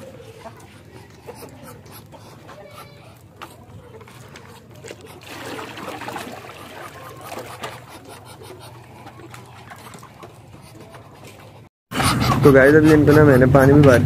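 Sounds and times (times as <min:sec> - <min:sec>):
water pouring into plastic tub: 0:05.2 - 0:07.6.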